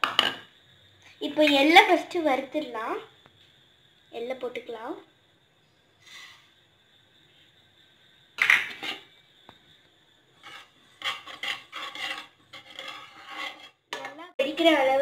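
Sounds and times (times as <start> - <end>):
spoon scraping seeds in metal pan: 10.4 - 14.7.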